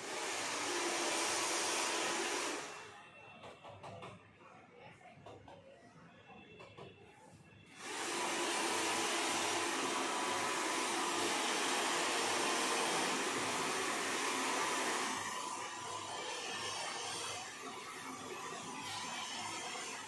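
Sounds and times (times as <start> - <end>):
hair dryer blowing air: 0.0 - 2.9, 7.7 - 20.0.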